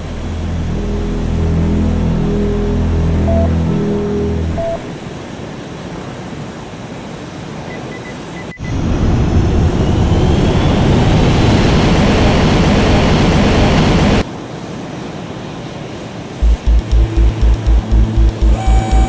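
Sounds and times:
short electronic beeps: 0.0 - 5.2, 16.4 - 19.0
jet engine roaring: 8.7 - 14.2.

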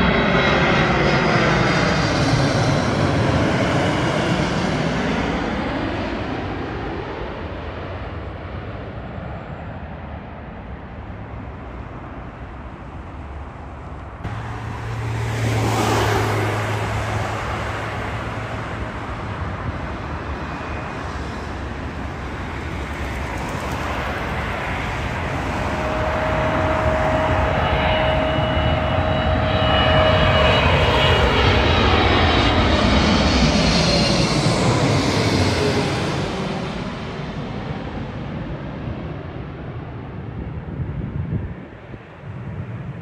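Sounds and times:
jet airliner engine rumble: 0.0 - 43.0
road vehicle passing: 13.8 - 22.0, 23.2 - 33.6.

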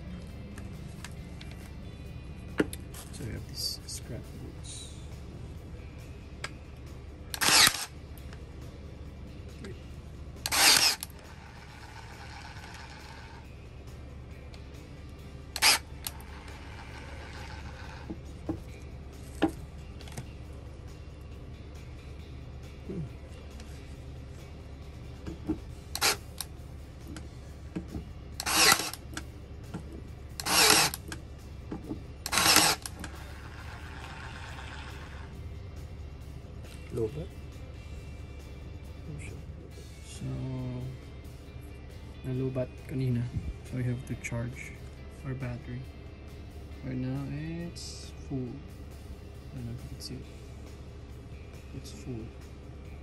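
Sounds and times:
brad nailer firing: 7.4 - 7.8, 10.5 - 11.1, 15.6 - 15.8, 28.4 - 29.0, 30.4 - 31.0, 32.3 - 32.9.

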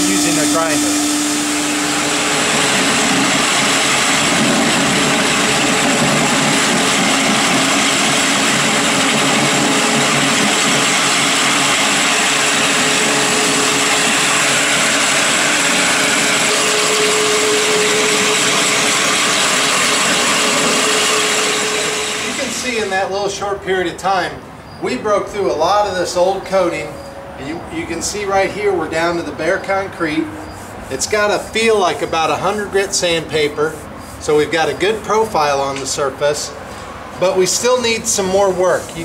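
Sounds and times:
floor grinder grinding concrete: 0.0 - 23.2, 37.2 - 39.0
dust collection vacuum running: 0.0 - 23.6, 24.9 - 39.0.

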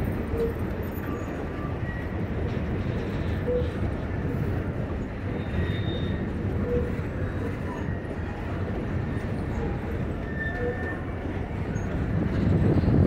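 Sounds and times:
train wheels rumbling on rail: 0.0 - 13.0
faint wheel squeals: 2.9 - 3.8, 5.1 - 8.4, 9.0 - 12.1.

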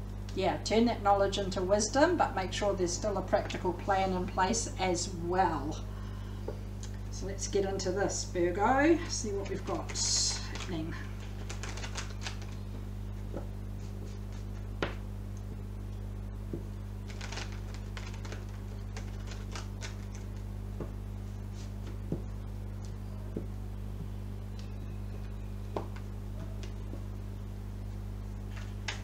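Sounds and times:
steady low hum: 0.0 - 29.0
cards being shuffled: 9.7 - 15.0, 16.5 - 22.2.

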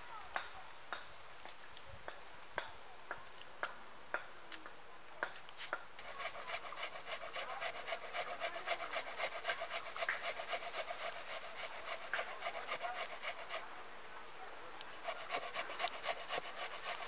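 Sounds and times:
vegetables rasping on a grater: 6.0 - 13.6, 15.0 - 17.0.

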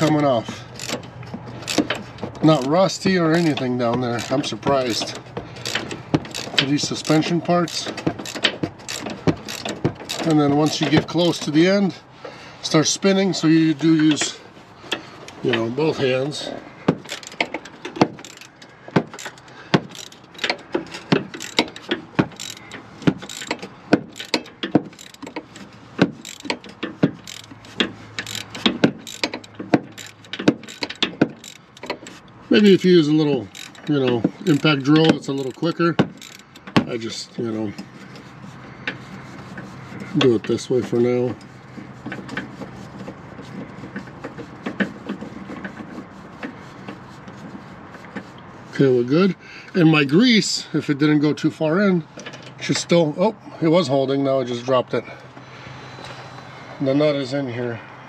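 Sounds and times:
socket ratchet clicking: 4.2 - 10.9, 17.0 - 32.4, 33.4 - 36.8.

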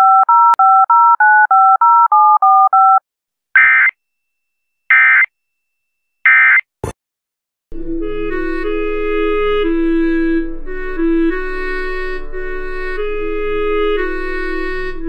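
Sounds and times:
music: 7.7 - 15.0.

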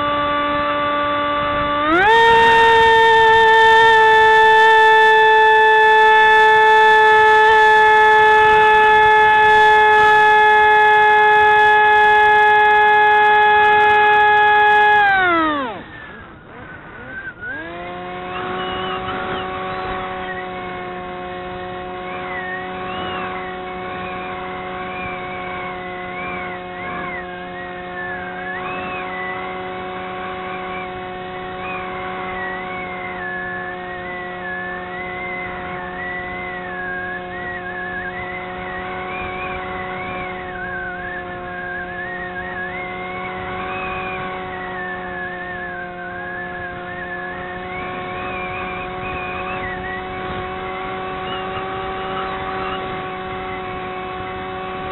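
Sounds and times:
higher wavering tone: 0.0 - 16.4
model plane motor whine: 0.0 - 54.9.

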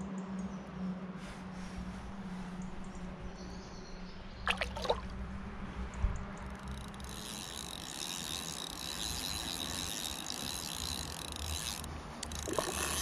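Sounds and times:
fishing reel whirring: 6.4 - 13.0.

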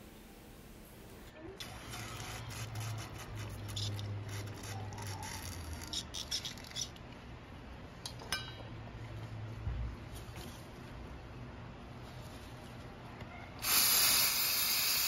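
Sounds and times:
aerosol spray hissing: 13.6 - 15.0.

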